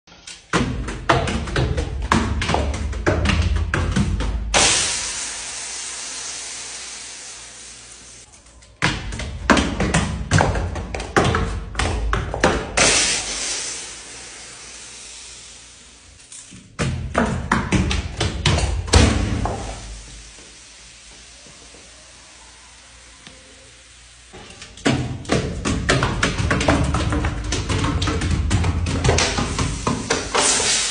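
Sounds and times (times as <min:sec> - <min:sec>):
bottle bursting: 0:04.6 - 0:08.2
liquid spraying: 0:04.6 - 0:08.3, 0:12.8 - 0:16.0, 0:29.0 - 0:30.9.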